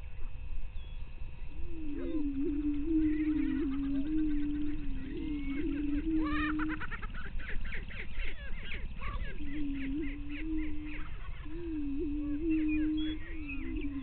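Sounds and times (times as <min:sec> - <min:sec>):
prairie chickens booming: 0:00.0 - 0:14.0
cackling bird calls: 0:01.7 - 0:14.0.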